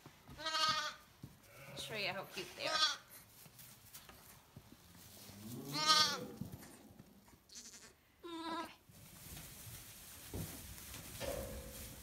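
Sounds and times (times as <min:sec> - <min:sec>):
lambs bleating: 0:00.4 - 0:01.9, 0:02.6 - 0:03.1, 0:05.7 - 0:06.4, 0:07.5 - 0:08.8.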